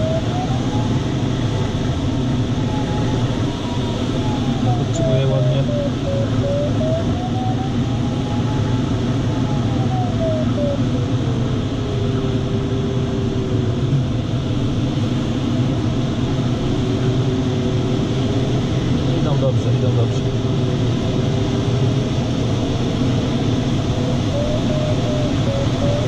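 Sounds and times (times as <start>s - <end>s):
electronic tone sliding in pitch: 0.0s - 1.0s, 2.6s - 8.6s, 24.3s - 26.0s
airflow rushing in cockpit: 0.0s - 26.0s.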